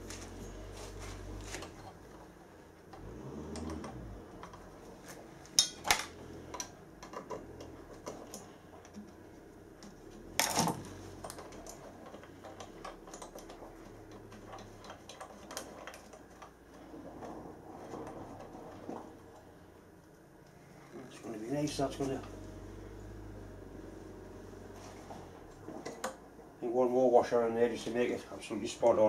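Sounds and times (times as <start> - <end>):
small metal parts clicking: 9.8 - 16.6.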